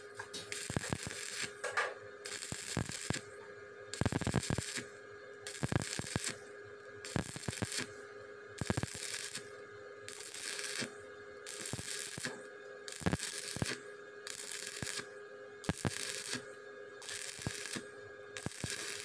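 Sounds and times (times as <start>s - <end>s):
welding arc crackling: 0.1s - 6.4s, 7.0s - 8.0s, 8.6s - 9.5s, 10.1s - 19.0s.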